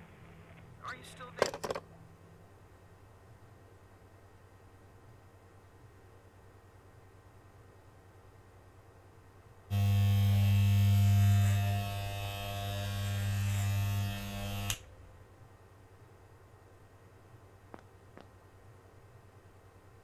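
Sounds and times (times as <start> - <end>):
electric hair clippers buzzing: 9.7 - 14.9.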